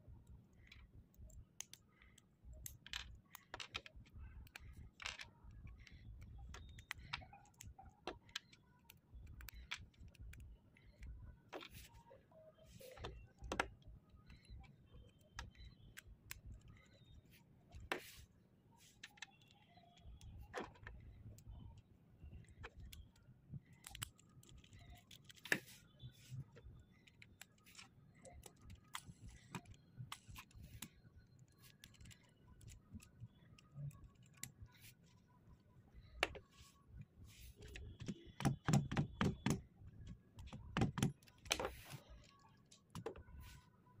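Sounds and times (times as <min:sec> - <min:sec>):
plastic parts clicking together: 0:00.2 - 0:12.0, 0:37.6 - 0:43.5.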